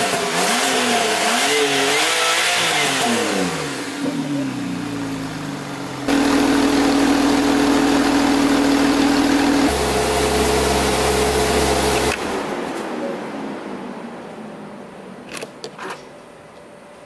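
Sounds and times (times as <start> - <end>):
car engine idling: 3.6 - 12.3.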